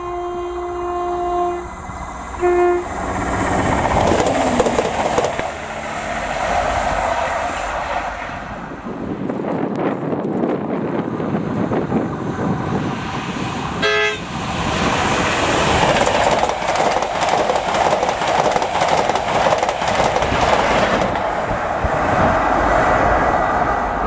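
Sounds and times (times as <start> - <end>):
train horn blast: 0.0 - 1.8, 2.4 - 3.2, 13.8 - 14.3
train wheels rushing on rail: 0.0 - 24.0.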